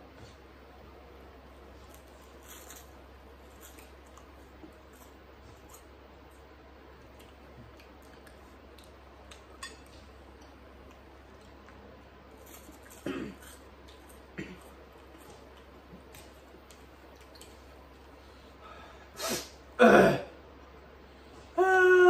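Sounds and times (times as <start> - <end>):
crunchy chewing: 1.5 - 18.3
fork on a plate: 9.3 - 10.0.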